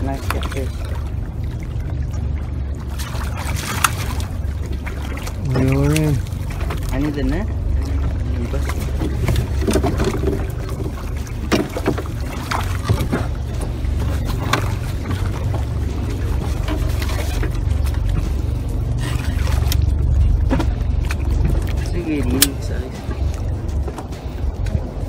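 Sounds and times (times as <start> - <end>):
fish splashing at surface: 0.0 - 7.0
water sloshing: 0.0 - 25.0
wind rumbling on microphone: 0.0 - 25.0.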